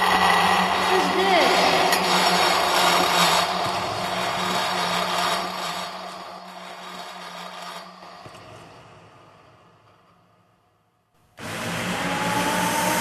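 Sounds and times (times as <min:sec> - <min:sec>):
drill grinding and scraping: 0:00.0 - 0:08.2
drill motor hum: 0:00.0 - 0:08.2, 0:11.4 - 0:13.0.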